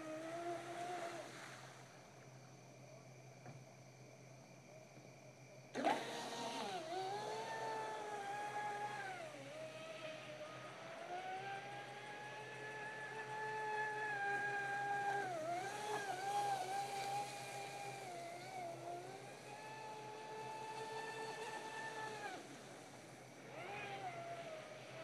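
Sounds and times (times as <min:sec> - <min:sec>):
electric motor high whine: 0:00.0 - 0:01.8, 0:05.7 - 0:25.0.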